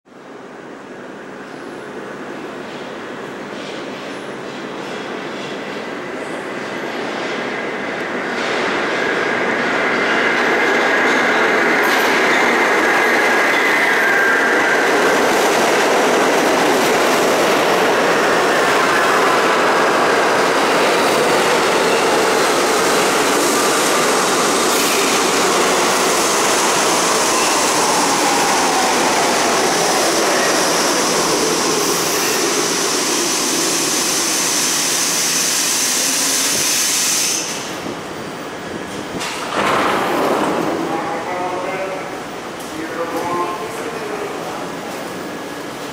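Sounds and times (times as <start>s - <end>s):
subway train braking: 0.2s - 45.9s.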